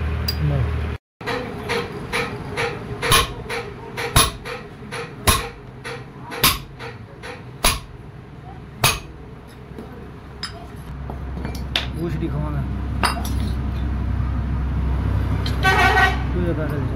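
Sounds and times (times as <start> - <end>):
hammer striking steel: 1.2 - 8.0, 8.8 - 9.2.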